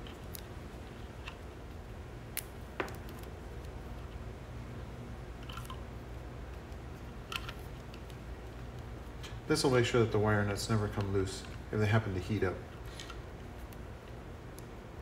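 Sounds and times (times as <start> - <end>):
hands wrapping electrical tape: 0.0 - 4.2, 5.4 - 9.4, 12.9 - 14.7
low room hum: 0.0 - 15.0.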